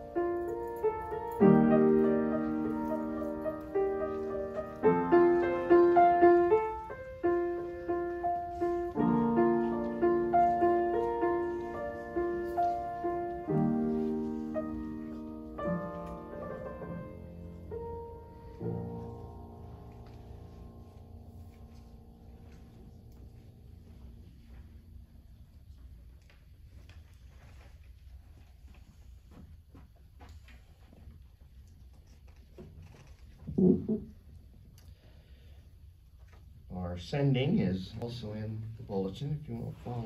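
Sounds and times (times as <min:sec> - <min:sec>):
slow solo piano piece: 0:00.0 - 0:25.3.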